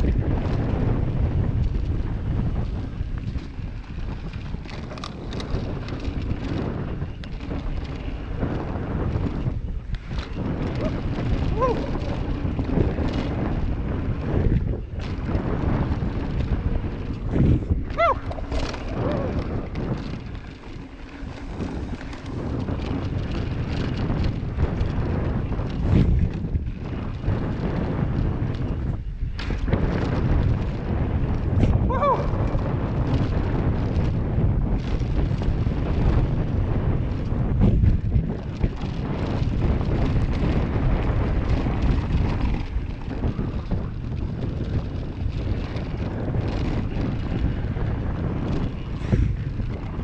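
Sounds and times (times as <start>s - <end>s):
bike rattling over bumps: 0.0s - 50.0s
tyres rolling on dirt trail: 0.0s - 50.0s
wind buffeting microphone: 0.0s - 50.0s.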